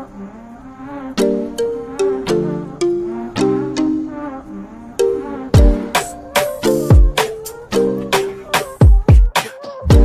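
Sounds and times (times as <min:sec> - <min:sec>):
plucked notes music: 0:01.2 - 0:09.2.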